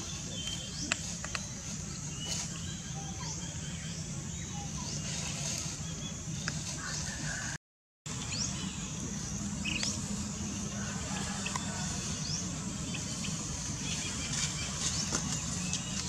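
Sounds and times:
steady low rumble: 8.1s - 16.0s.

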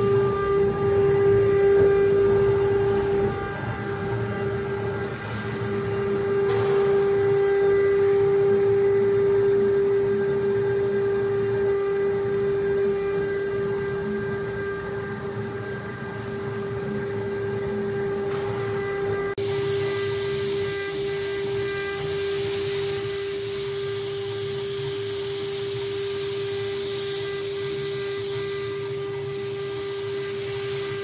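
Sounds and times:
router spindle whine: 0.0s - 31.0s.

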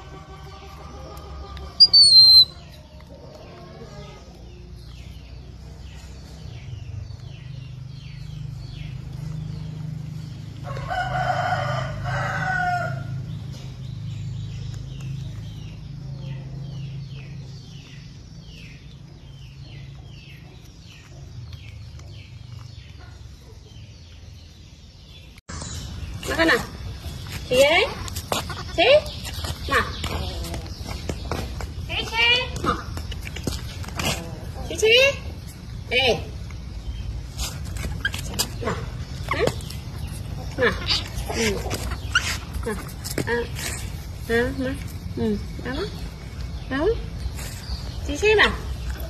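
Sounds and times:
rooster crowing: 10.6s - 13.2s.

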